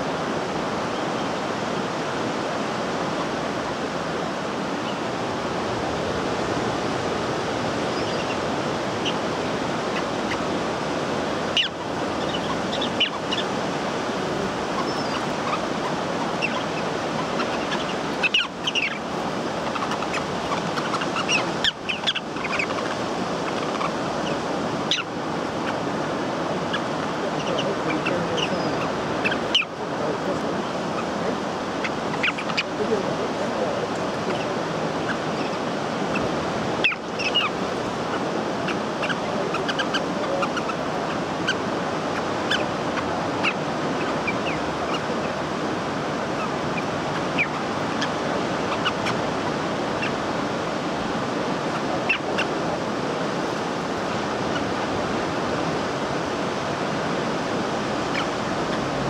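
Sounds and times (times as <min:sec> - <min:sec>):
sea noise: 0:00.0 - 0:59.0
sharp high bird calls: 0:07.8 - 0:10.6, 0:11.4 - 0:13.6, 0:14.2 - 0:29.8, 0:30.8 - 0:32.8, 0:34.2 - 0:45.5, 0:46.2 - 0:50.6, 0:51.6 - 0:52.6, 0:58.0 - 0:59.0.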